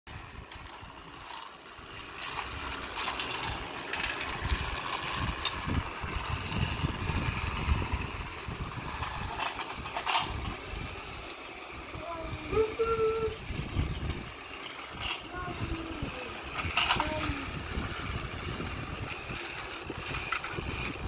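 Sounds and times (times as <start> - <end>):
toy train engine rumbling: 0.1 - 21.0
plastic clicks and clatters: 16.5 - 17.4.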